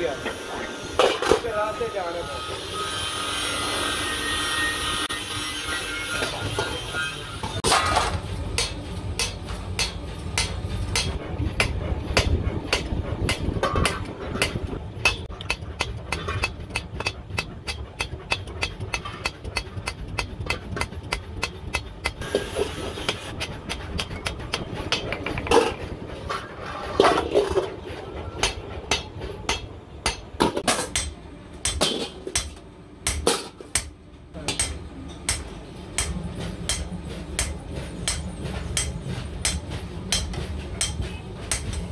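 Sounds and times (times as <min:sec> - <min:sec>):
hammer beating metal wok: 0:05.6 - 0:25.7, 0:28.2 - 0:41.9.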